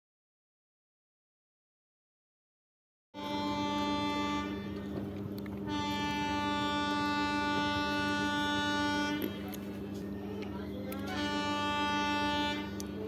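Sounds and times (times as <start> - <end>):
locomotive horn blasts: 3.2 - 9.7, 10.9 - 13.0.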